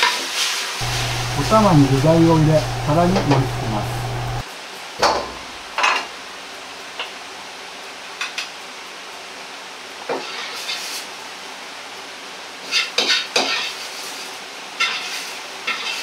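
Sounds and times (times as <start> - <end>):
steady background hiss: 0.8 - 4.4.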